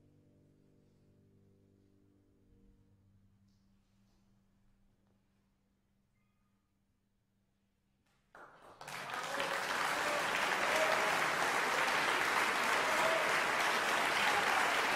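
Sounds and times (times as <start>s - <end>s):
audience applauding: 8.4s - 14.9s.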